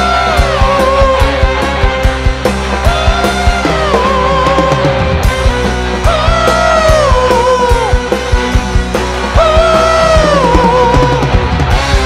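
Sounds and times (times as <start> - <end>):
bass: 0.0 - 12.0
sliding lead melody: 0.0 - 12.0.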